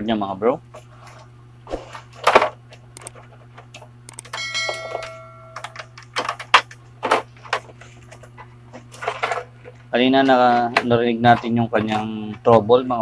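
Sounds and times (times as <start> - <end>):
steady low hum: 0.0 - 13.0
clicks and knocks of handling: 2.2 - 12.6
bell-like notification chime: 4.3 - 5.8.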